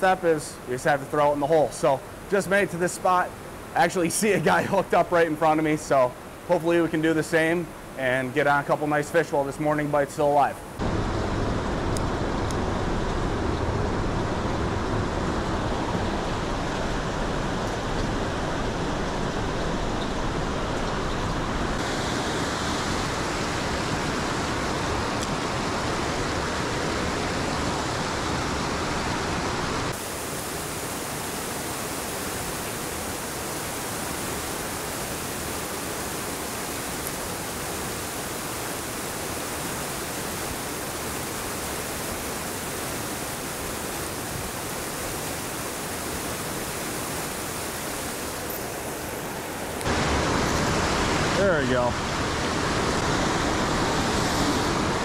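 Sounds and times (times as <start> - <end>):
river rapids rushing: 14.0 - 55.0.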